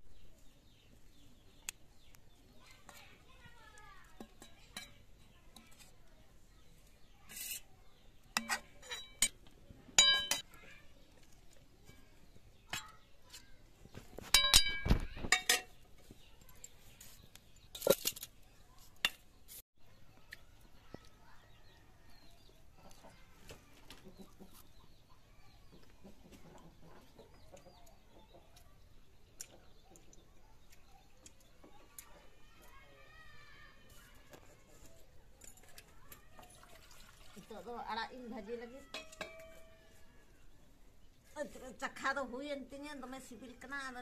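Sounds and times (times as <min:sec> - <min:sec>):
spoon clinking against wok: 0:04.2 - 0:05.8, 0:08.4 - 0:09.4, 0:10.0 - 0:10.5, 0:14.3 - 0:15.8, 0:38.9 - 0:39.9.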